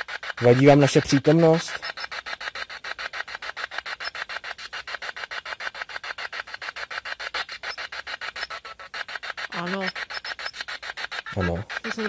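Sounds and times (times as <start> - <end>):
chopping radio static: 9.6 - 10.0, 11.4 - 12.0.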